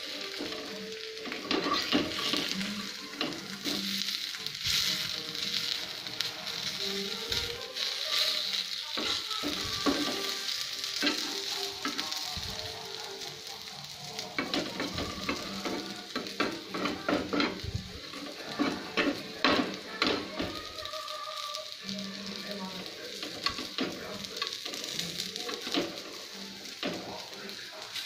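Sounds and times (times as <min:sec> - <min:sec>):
food sizzling in oil: 0:00.0 - 0:28.0
spatula scraping a pan: 0:00.2 - 0:12.3, 0:12.9 - 0:20.6.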